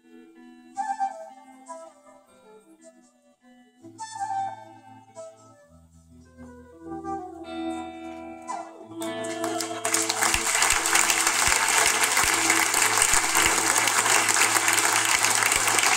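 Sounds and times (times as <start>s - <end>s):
electric guitar: 0.0s - 15.9s
flute: 0.0s - 15.9s
audience applause and cheering: 9.0s - 15.9s.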